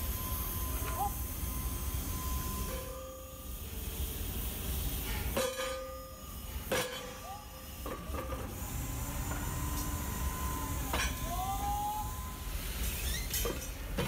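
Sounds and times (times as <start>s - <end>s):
metallic squeals: 0.0s - 3.5s, 8.8s - 13.7s
low rumble of shop machinery: 0.0s - 14.0s
hammer striking hot steel: 4.9s - 8.6s, 10.8s - 12.0s.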